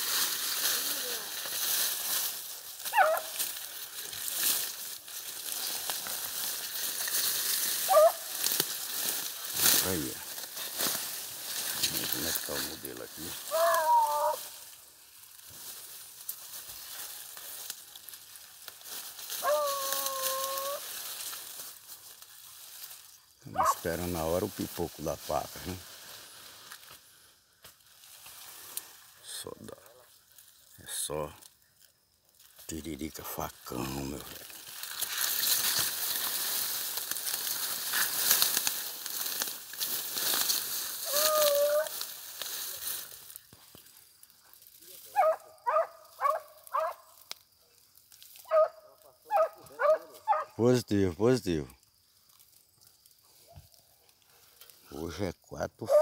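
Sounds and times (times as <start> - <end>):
grass and brush rustling: 0.0 - 56.0
dry stems snapping: 0.1 - 14.7, 15.3 - 23.0, 33.6 - 44.8, 46.3 - 49.1
dog cry: 2.9 - 3.4, 7.8 - 8.3, 13.5 - 14.5, 19.4 - 20.8, 23.6 - 23.8, 41.0 - 42.0, 45.2 - 47.0, 48.5 - 50.6.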